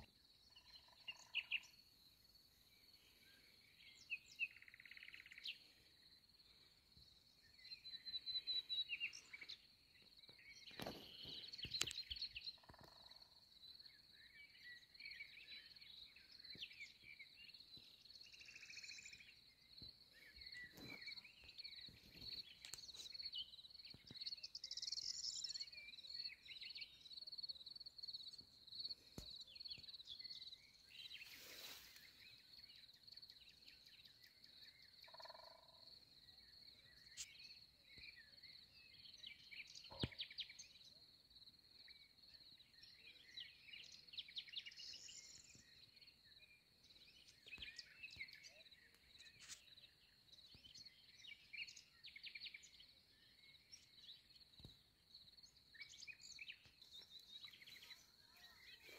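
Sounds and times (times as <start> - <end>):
birds chirping and singing: 0.0 - 2.0, 2.8 - 13.1, 14.0 - 35.6, 55.3 - 58.9.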